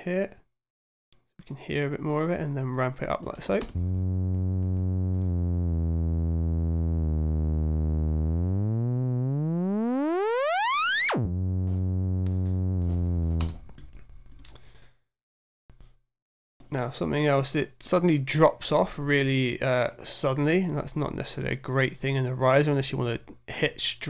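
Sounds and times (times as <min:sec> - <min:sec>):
synth riser gliding up in pitch: 0:03.8 - 0:13.6
faint clicks: 0:04.6 - 0:05.3.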